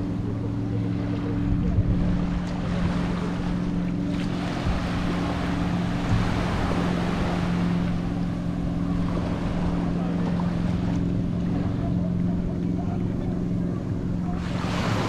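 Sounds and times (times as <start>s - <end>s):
low motor hum: 0.0s - 15.0s
small waves washing on shore: 1.0s - 12.3s, 14.1s - 15.0s
wind on microphone: 1.4s - 10.7s.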